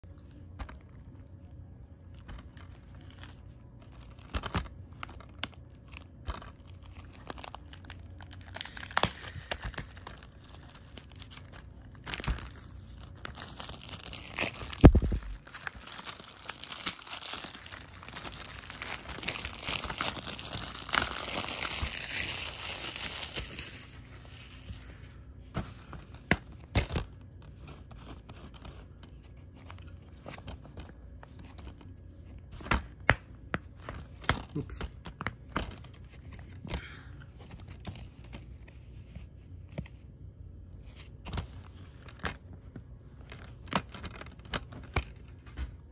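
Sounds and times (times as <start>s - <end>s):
shrink wrap tearing and crinkling: 2.1s - 24.8s, 26.2s - 28.8s, 43.2s - 45.4s.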